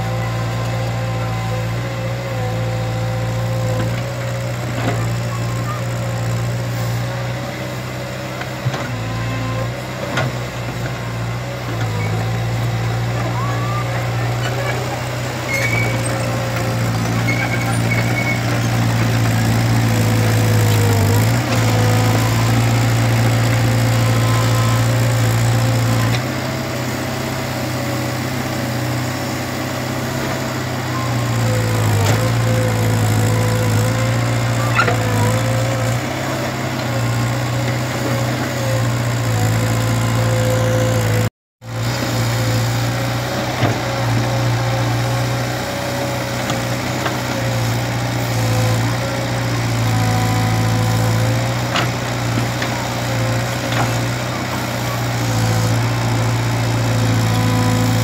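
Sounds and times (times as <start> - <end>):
excavator diesel engine running: 0.0 - 58.0.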